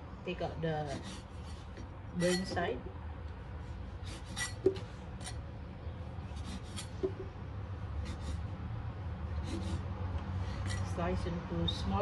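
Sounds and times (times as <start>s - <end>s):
steady low hum: 0.0s - 12.0s
knife scraping through bread: 4.0s - 5.4s, 6.3s - 7.2s, 9.4s - 9.9s.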